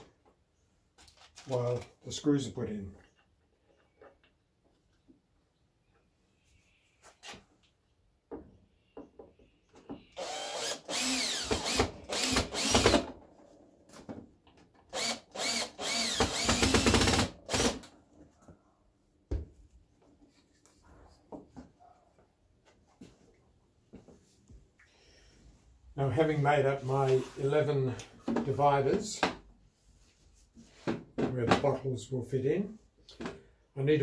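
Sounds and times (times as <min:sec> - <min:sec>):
drill driving screws into wood: 0:10.1 - 0:13.2, 0:14.9 - 0:17.9.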